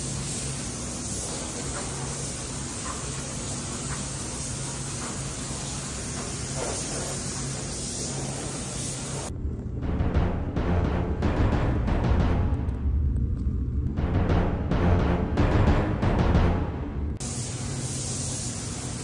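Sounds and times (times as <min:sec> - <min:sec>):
spray gun hissing: 0:00.0 - 0:09.3, 0:17.2 - 0:19.0
low hum: 0:09.2 - 0:17.2
music: 0:09.7 - 0:17.2.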